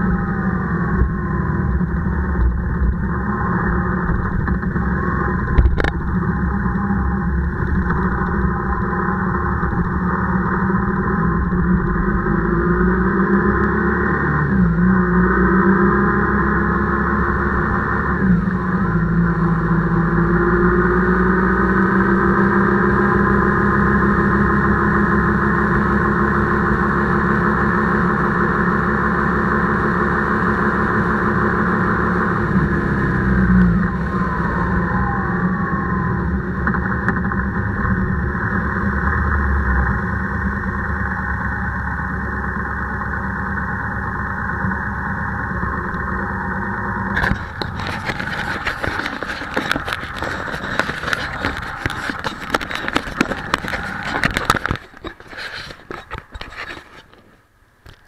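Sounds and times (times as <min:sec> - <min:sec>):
motorcycle engine running: 0:00.0 - 0:57.2.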